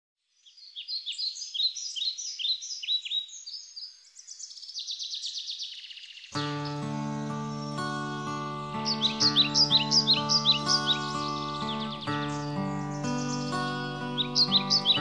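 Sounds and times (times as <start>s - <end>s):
songbird singing: 0.2s - 15.0s
music with sustained notes: 6.3s - 15.0s.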